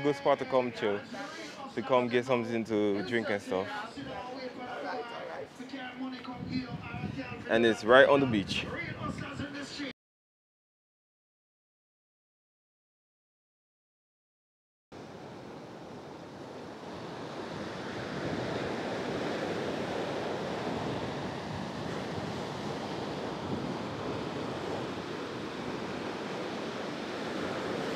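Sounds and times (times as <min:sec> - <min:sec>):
small waves washing on beach: 0:15.0 - 0:27.9.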